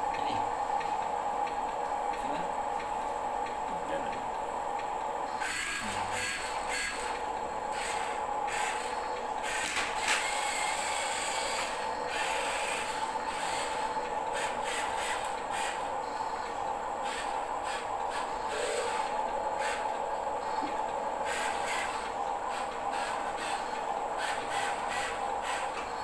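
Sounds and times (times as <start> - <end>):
steady hum: 0.0 - 26.0
toy truck motor whirring: 5.4 - 15.9, 17.0 - 19.9, 21.2 - 25.8.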